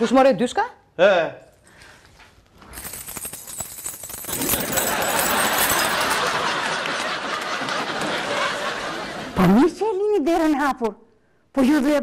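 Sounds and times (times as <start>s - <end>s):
audience applause: 4.4s - 9.2s.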